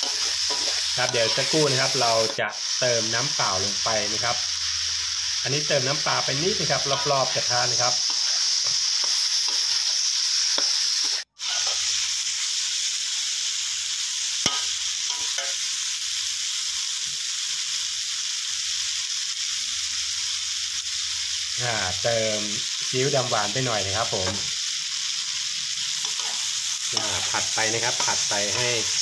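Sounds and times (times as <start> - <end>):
spatula scraping a wok: 0.0 - 2.8, 6.0 - 12.2, 14.4 - 15.7, 24.0 - 29.0
meat sizzling in a wok: 0.0 - 29.0.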